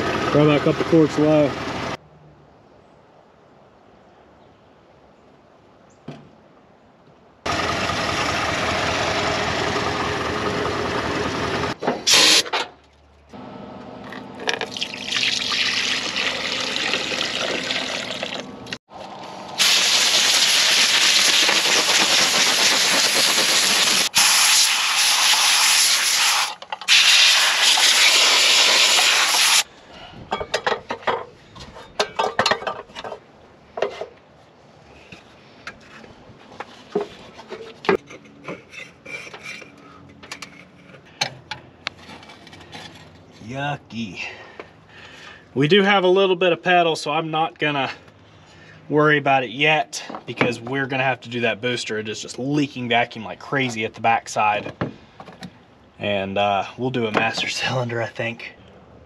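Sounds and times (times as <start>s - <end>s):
fluid pouring into funnel: 14.6s - 18.4s.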